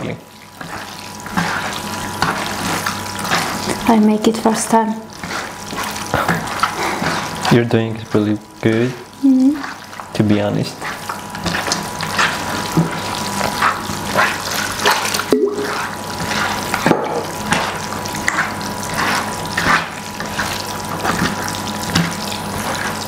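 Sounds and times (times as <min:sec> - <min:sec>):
hands squelching wet minced meat: 0:05.1 - 0:23.0.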